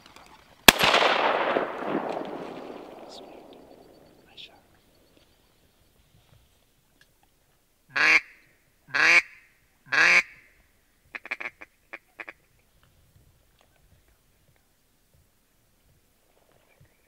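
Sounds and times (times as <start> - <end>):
duck quacking: 7.9 - 10.4.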